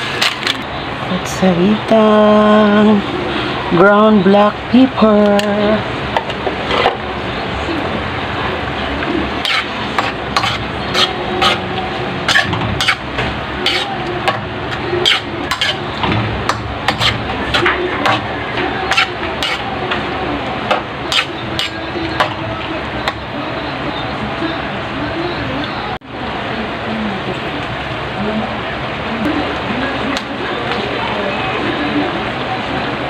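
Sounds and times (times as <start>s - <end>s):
metal spoon scraping a wok: 9.4s - 19.7s, 21.1s - 21.9s.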